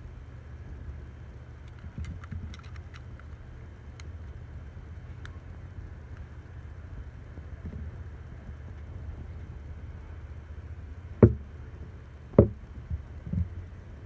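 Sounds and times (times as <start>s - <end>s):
steady low hum: 0.0s - 14.0s
sharp knocks on wooden table: 11.2s - 11.4s, 12.4s - 12.6s.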